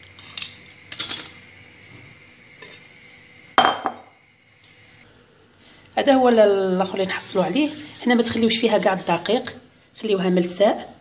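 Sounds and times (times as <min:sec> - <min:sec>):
glass bowl clinking on stone: 0:03.6 - 0:04.0.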